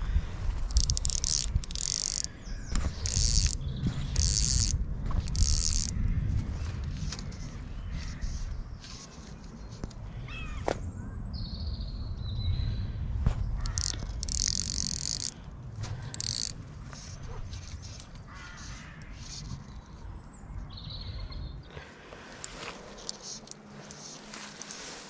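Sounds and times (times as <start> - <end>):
steady low rumble: 0.0 - 14.2, 15.2 - 23.9
birds calling: 0.7 - 11.2, 13.4 - 25.0
crow cawing: 18.3 - 19.2
loud hissing rustle: 22.2 - 25.0.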